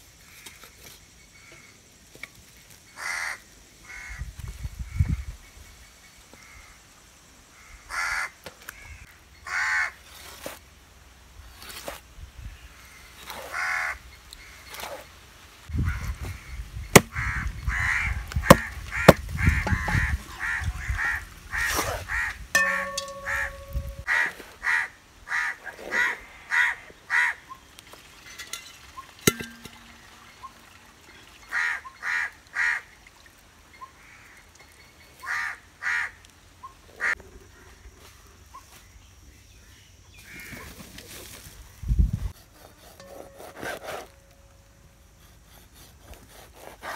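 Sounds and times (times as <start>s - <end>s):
crows cawing: 3.0s - 4.2s, 7.6s - 10.0s, 17.1s - 23.5s, 24.1s - 27.4s, 31.5s - 32.8s, 35.2s - 36.2s
sharp knocks: 18.5s - 20.2s, 22.6s - 24.1s.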